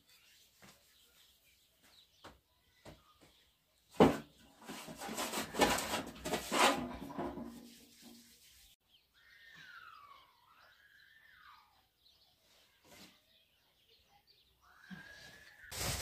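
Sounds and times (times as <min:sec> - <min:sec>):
rubbing and rustling: 0:04.0 - 0:08.8, 0:15.7 - 0:16.0.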